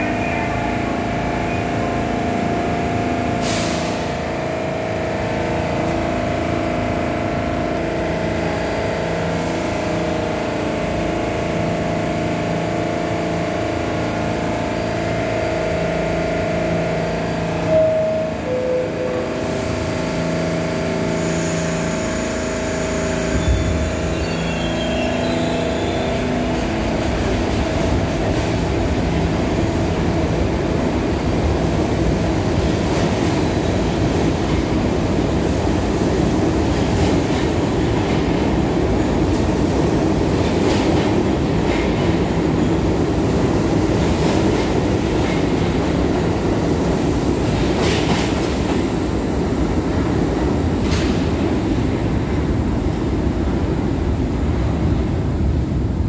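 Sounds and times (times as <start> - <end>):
subway train hum: 0.0 - 56.0
train cars rumbling past: 0.0 - 56.0.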